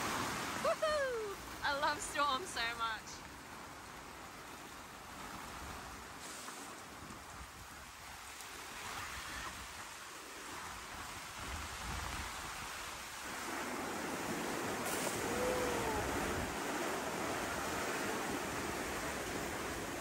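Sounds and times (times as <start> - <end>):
heavy rain pouring: 13.3 - 20.0.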